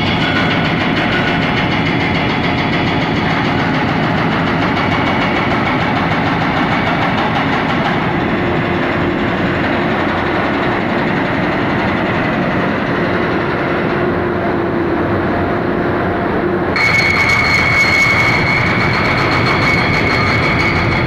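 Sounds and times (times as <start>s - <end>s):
heavy construction machinery din: 0.0s - 21.0s
high steady whine: 8.0s - 21.0s.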